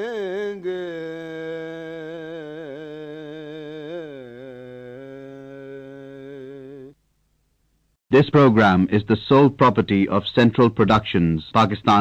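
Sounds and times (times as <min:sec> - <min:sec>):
man singing a long note: 0:00.0 - 0:07.0.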